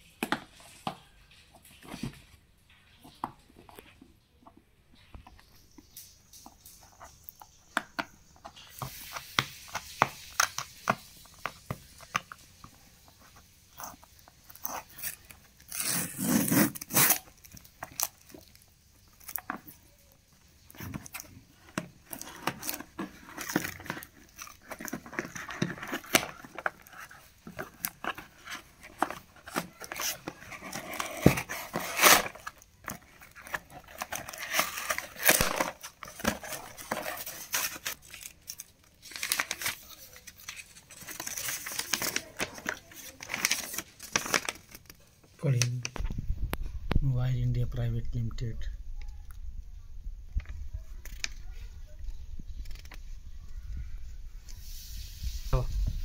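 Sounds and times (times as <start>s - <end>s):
rustling: 0.2s - 47.2s
tape and cardboard tearing: 13.7s - 19.6s, 20.7s - 45.0s
fingernails scratching packing tape: 14.5s - 17.4s.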